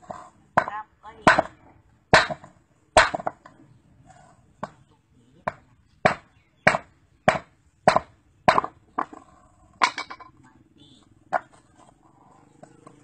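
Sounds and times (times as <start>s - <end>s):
hammer striking rock: 0.6s - 3.4s, 5.5s - 9.1s.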